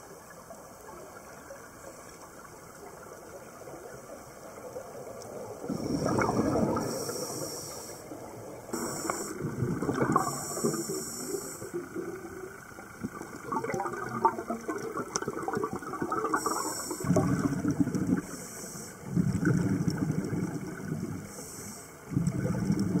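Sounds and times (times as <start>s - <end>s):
crackling bubbles: 0.0s - 23.0s
exhaled bubbles bursting: 5.6s - 7.1s, 8.7s - 18.4s, 19.0s - 21.3s, 22.1s - 23.0s
diver breathing through regulator: 5.7s - 8.2s, 8.8s - 12.0s, 16.4s - 17.5s, 18.1s - 19.1s, 21.2s - 22.0s.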